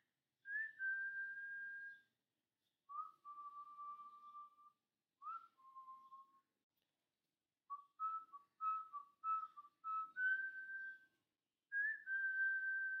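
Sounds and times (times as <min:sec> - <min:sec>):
person whistling a tune: 0:00.4 - 0:02.2, 0:02.9 - 0:06.5, 0:07.7 - 0:13.0.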